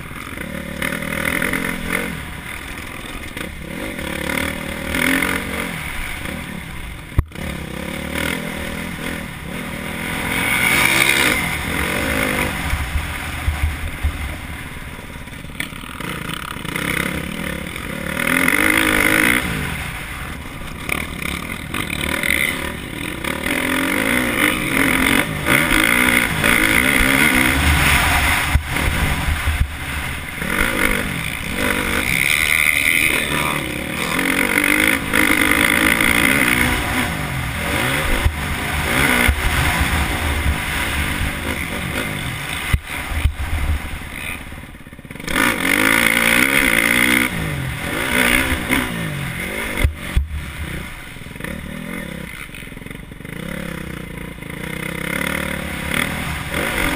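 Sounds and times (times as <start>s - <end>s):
motorcycle engine revving: 0.0s - 56.9s
wind rumbling on microphone: 26.2s - 31.8s.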